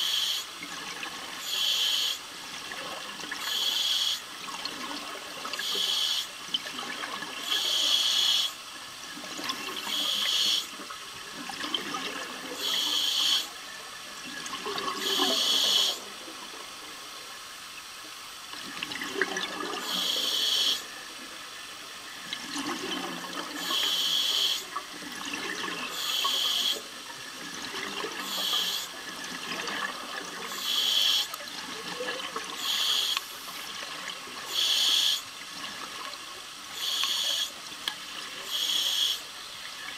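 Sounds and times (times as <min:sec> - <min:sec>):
regulator bubble hisses: 0:00.0 - 0:00.6, 0:01.2 - 0:02.6, 0:03.3 - 0:04.8, 0:05.4 - 0:06.5, 0:07.3 - 0:11.2, 0:12.2 - 0:13.8, 0:14.4 - 0:16.2, 0:18.8 - 0:21.1, 0:22.4 - 0:27.0, 0:27.6 - 0:36.0, 0:36.6 - 0:39.9.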